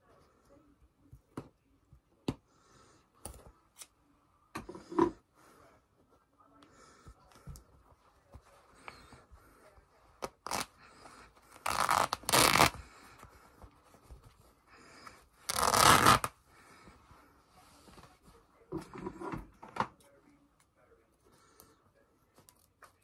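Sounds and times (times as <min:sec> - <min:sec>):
fabric ripping: 0:10.2 - 0:10.7, 0:11.6 - 0:12.9, 0:15.5 - 0:16.4
cloth handling: 0:10.2 - 0:14.6, 0:15.4 - 0:16.3.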